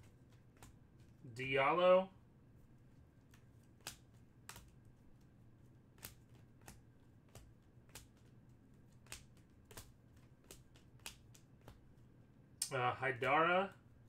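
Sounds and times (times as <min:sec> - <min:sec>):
cards flipping with light clicks: 0:00.0 - 0:01.2, 0:02.6 - 0:13.4
faint room noise: 0:00.0 - 0:14.0.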